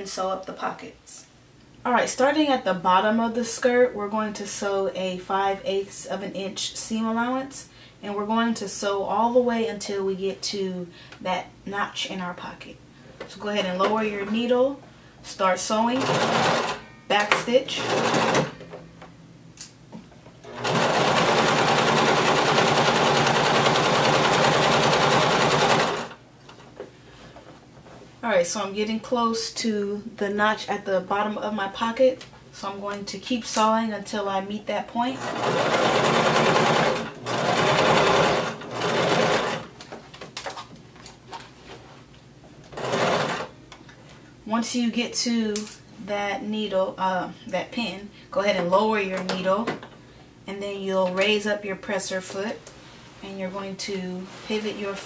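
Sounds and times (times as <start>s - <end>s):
sewing machine whirring: 16.0s - 16.8s, 17.8s - 18.6s, 20.4s - 26.2s, 35.2s - 39.7s, 42.7s - 43.5s.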